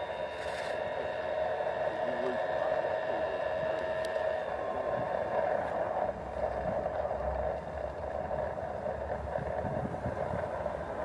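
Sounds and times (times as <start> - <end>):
hissing drone: 0.0 - 11.0
wind buffeting microphone: 3.2 - 11.0.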